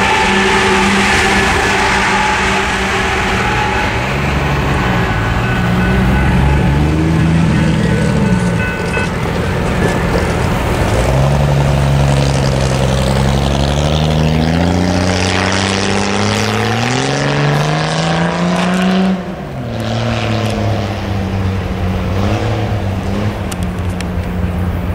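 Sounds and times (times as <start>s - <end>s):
engine running under load: 0.0s - 24.9s.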